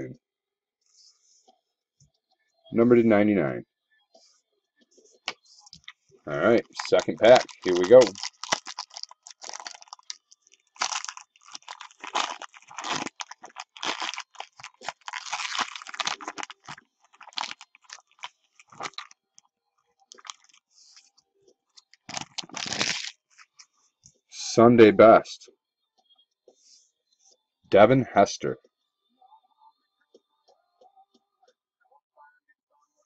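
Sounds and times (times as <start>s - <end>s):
foil wrapper tearing and crinkling: 6.6s - 19.2s, 20.1s - 20.6s, 22.1s - 23.6s.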